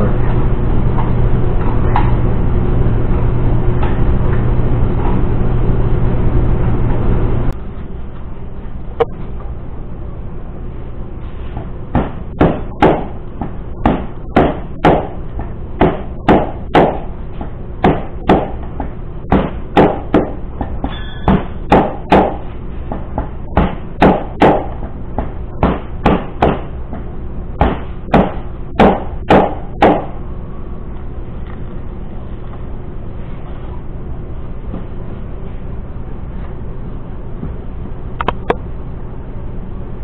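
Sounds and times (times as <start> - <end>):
steady low hum: 0.0 - 40.0
sharp knocks: 11.9 - 15.2, 15.8 - 17.1, 17.8 - 27.0, 27.6 - 30.1.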